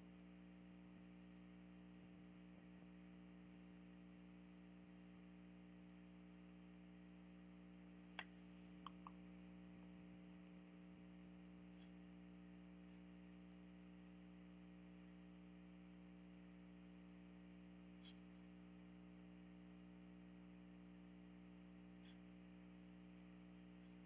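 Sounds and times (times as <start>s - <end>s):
low electrical hum: 0.0s - 24.0s
faint short clicks: 8.1s - 9.2s.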